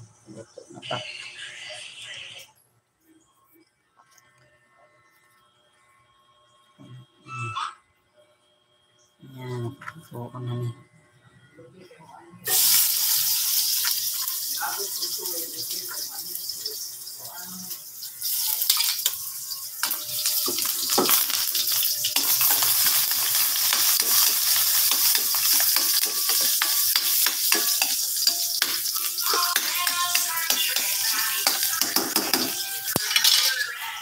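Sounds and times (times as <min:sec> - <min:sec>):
food sizzling in hot oil: 0:12.4 - 0:34.0
metal spatula scraping wok: 0:18.2 - 0:34.0.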